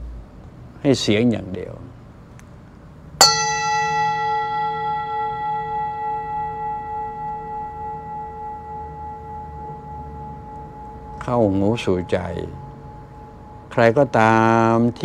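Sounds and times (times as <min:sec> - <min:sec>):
metal bell ringing: 0:03.2 - 0:15.0.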